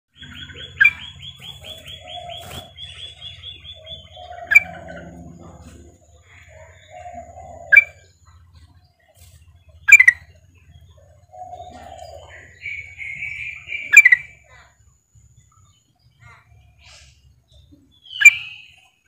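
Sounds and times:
loud sharp bird chirps: 0:00.1 - 0:08.1, 0:09.8 - 0:14.8, 0:18.0 - 0:19.0
lower bird calls: 0:00.1 - 0:19.0.

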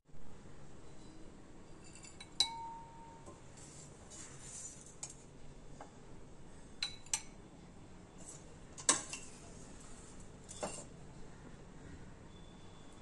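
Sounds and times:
spoon clinking against cookware: 0:01.8 - 0:03.3, 0:06.8 - 0:07.4.

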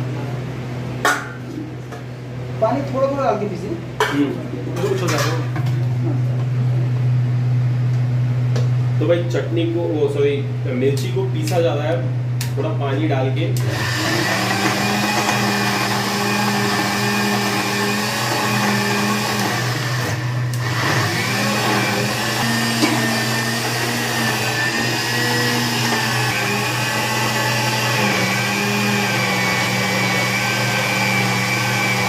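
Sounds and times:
mixer grinder running: 0:13.6 - 0:32.0.

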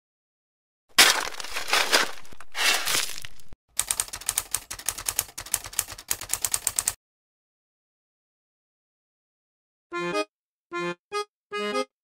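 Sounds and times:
scraping rustling noise: 0:01.0 - 0:03.6
typewriter keys clacking: 0:03.8 - 0:07.0.

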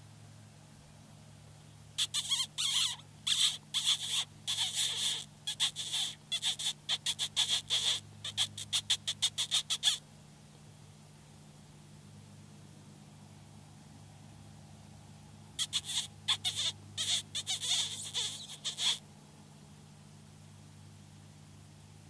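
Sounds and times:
high sharp mouth squeaks: 0:02.0 - 0:10.0, 0:15.6 - 0:19.0.

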